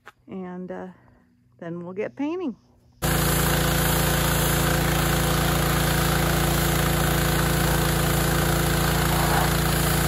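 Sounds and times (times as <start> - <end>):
pressure washer spraying metal: 3.0 - 10.0.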